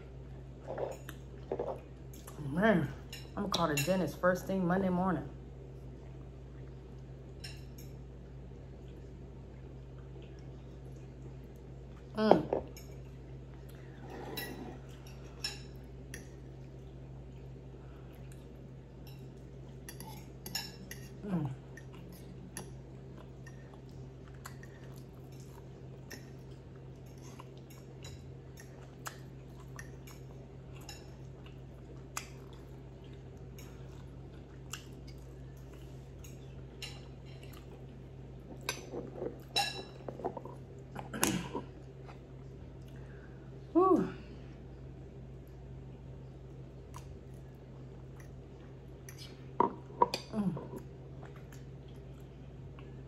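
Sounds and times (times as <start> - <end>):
steady low hum: 0.0 - 53.0
fork scraping on ceramic plate: 14.0 - 14.8.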